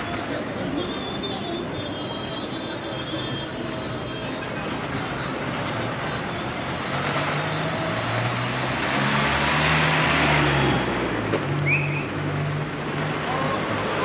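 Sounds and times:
car driving past: 6.8s - 14.0s.

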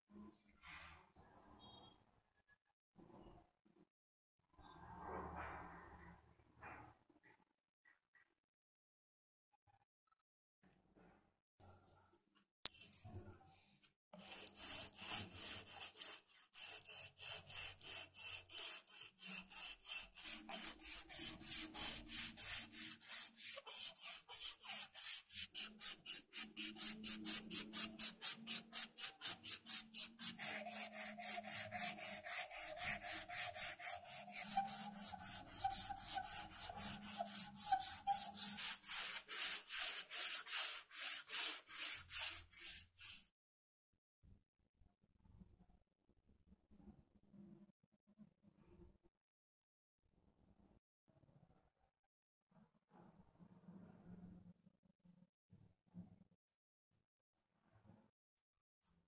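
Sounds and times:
sandpaper scratching wood: 14.2s - 43.2s.

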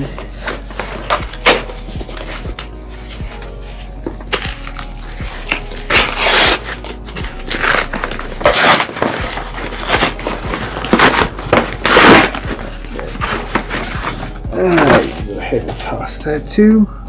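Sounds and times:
packaging ripping and crinkling: 4.3s - 15.2s.

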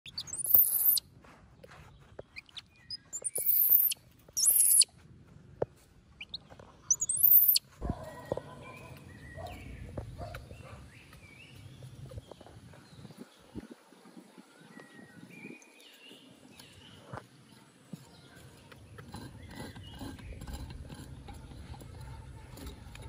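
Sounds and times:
baby monkey shrieking: 0.1s - 1.0s, 3.2s - 4.8s, 6.9s - 7.6s.

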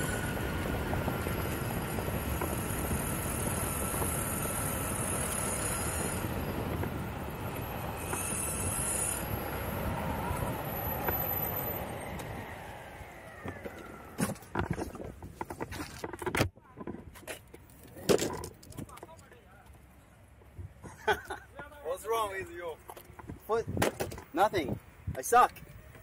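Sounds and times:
high electric motor whine: 0.0s - 15.1s
skateboard wheels rumbling on asphalt: 0.0s - 20.9s.

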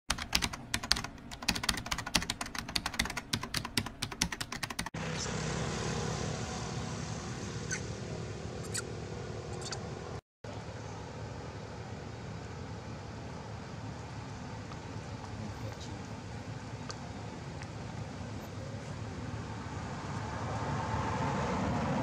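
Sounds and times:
rapid keyboard typing: 0.1s - 5.0s
outdoor background noise: 5.0s - 22.0s.

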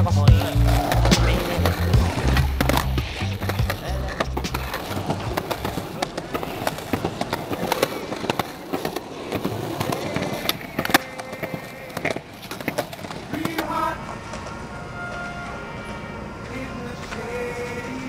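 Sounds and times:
skateboard wheels rolling on concrete: 0.0s - 18.0s
skateboard pops and clacks: 0.8s - 13.7s.

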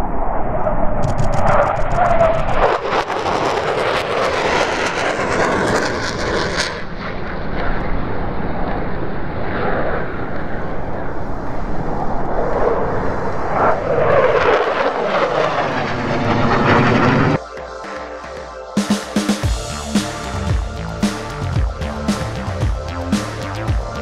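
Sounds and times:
fighter jet roaring past: 1.6s - 17.4s.

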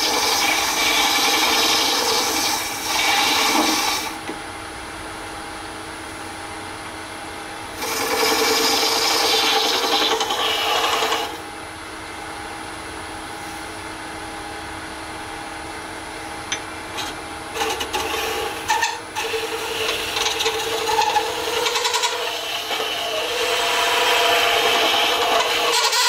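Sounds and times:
tool scraping resin: 0.0s - 4.2s, 7.8s - 11.4s, 16.9s - 26.0s
lathe humming: 0.0s - 4.3s, 7.8s - 11.4s, 16.4s - 26.0s.

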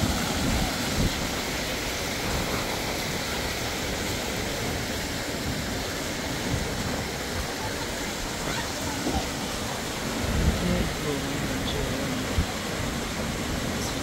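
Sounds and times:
water splashing into ponds: 0.0s - 14.0s.

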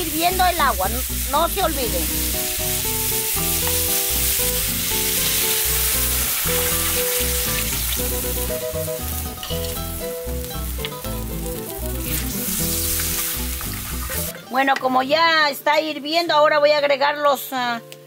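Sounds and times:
meat sizzling in pan: 0.0s - 14.4s
background music with bass: 0.0s - 14.6s.

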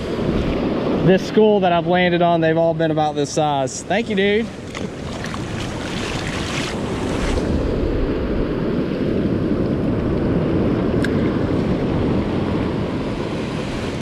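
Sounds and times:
surf washing over sand: 0.0s - 14.0s
wind buffeting microphone: 0.0s - 14.0s
water splashing: 4.2s - 7.7s.

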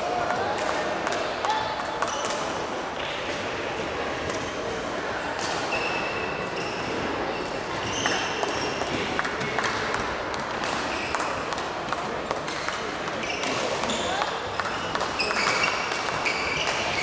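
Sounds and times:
hall hubbub: 0.0s - 17.0s
sneakers squeaking on floor: 5.7s - 9.5s, 13.2s - 17.0s
rackets hitting shuttlecock: 7.7s - 17.0s.

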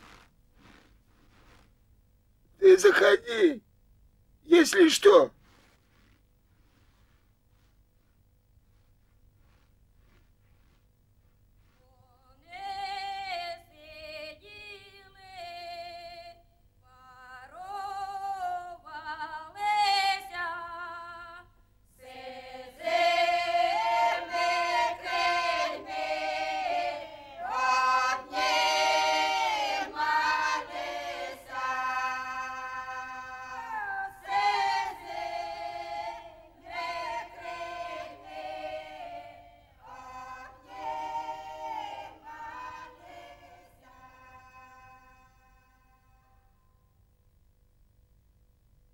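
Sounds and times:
women's choir singing: 12.4s - 16.4s, 21.9s - 46.0s.

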